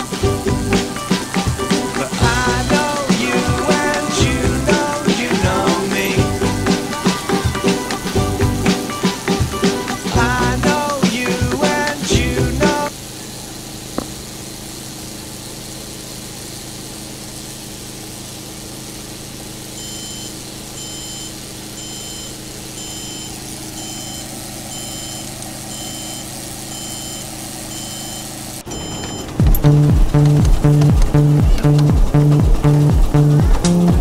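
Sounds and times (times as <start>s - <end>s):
motor humming: 0.0s - 34.0s
high-pitched electronic beeps: 19.8s - 30.8s.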